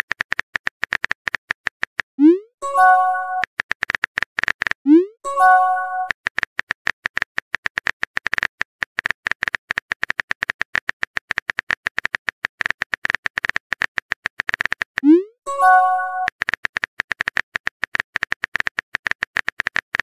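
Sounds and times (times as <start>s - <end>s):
phone keyboard typing clicks: 5.4s - 20.0s.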